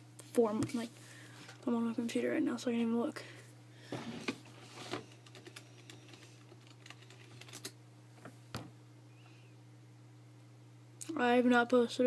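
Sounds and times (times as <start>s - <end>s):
steady low hum: 0.0s - 12.0s
keystrokes on computer keyboard: 5.2s - 7.8s.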